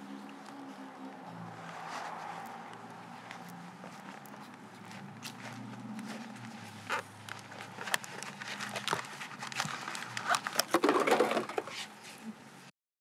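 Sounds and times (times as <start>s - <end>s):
footsteps on pavement: 0.0s - 10.7s
knocks and scrapes: 6.8s - 12.2s.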